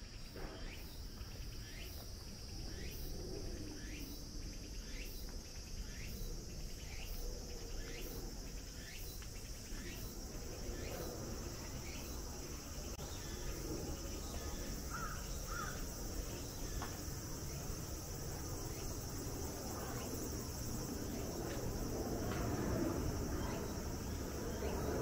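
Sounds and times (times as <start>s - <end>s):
insects droning: 0.0s - 25.0s
low outdoor rumble: 9.4s - 25.0s.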